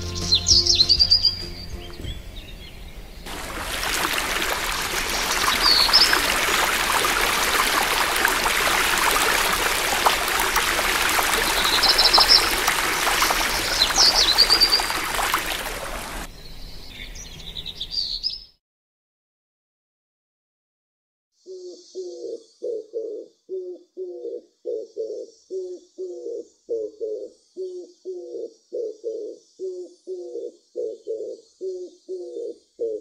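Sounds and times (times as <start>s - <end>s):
small birds chirping: 0.0s - 18.6s
rushing water: 3.3s - 16.3s.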